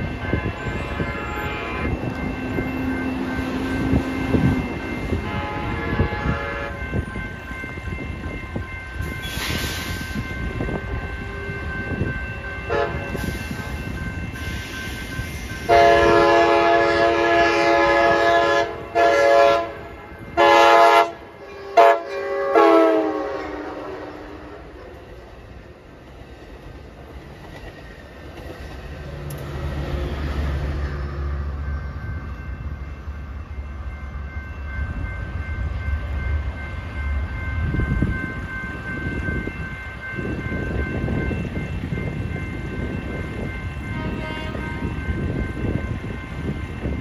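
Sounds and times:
passenger train rumbling: 0.0 - 47.0
train horn blasts: 0.6 - 2.2, 5.1 - 7.0, 12.7 - 13.2, 15.7 - 24.8, 43.9 - 45.1.

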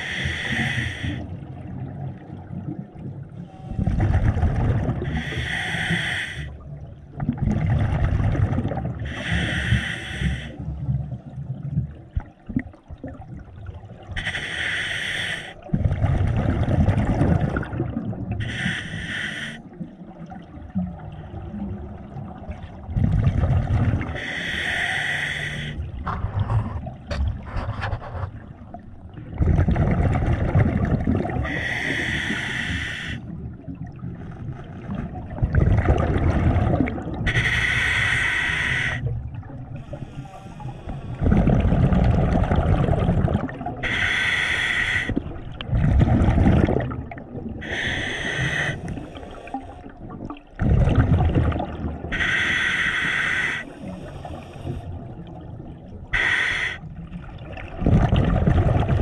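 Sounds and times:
hissing regulator inhale: 0.0 - 1.2, 5.1 - 6.6, 9.1 - 10.6, 14.2 - 15.6, 18.4 - 19.6, 24.2 - 25.8, 31.5 - 33.3, 37.3 - 39.1, 39.8 - 41.2, 43.8 - 45.2, 47.6 - 49.9, 52.1 - 55.0, 56.2 - 56.9
exhaled bubbles rumbling: 0.0 - 5.5, 6.6 - 9.6, 10.4 - 14.3, 15.6 - 18.6, 19.6 - 24.3, 25.5 - 37.8, 39.0 - 44.0, 45.0 - 52.3, 53.7 - 56.2, 56.8 - 59.0.

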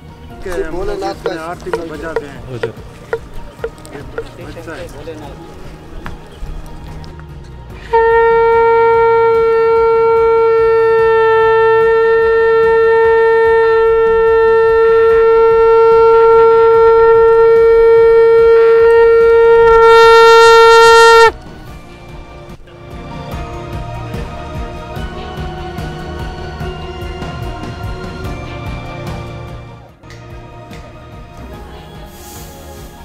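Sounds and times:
conch shell blown: 7.8 - 21.4.

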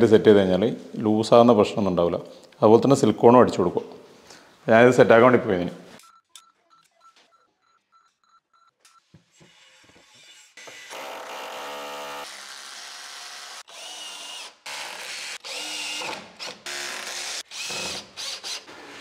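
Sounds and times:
cordless drill driving screws: 10.6 - 18.8.

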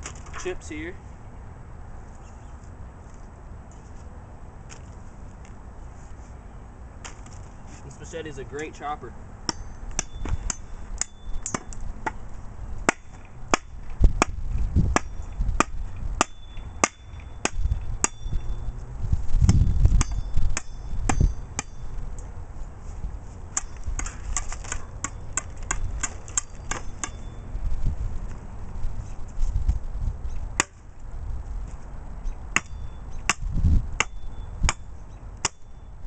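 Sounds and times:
machete chopping wood: 12.9 - 18.2, 30.6 - 30.8, 32.6 - 35.6.

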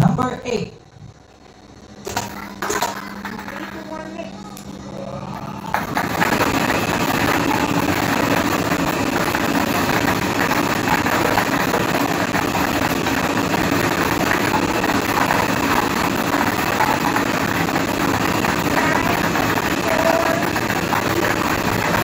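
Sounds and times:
machine motor and air noise: 0.2 - 22.0
plastic balls clattering: 2.0 - 4.7.

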